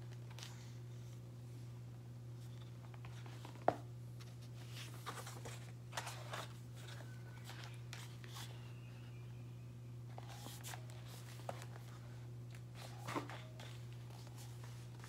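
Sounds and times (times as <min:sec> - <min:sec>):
steady low hum: 0:00.0 - 0:15.0
book pages rustling: 0:02.4 - 0:08.7, 0:10.1 - 0:15.0.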